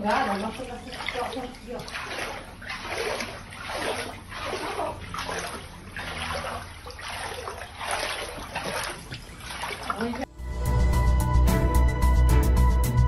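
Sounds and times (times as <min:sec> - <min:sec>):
water sloshing and splashing: 0:00.0 - 0:10.3.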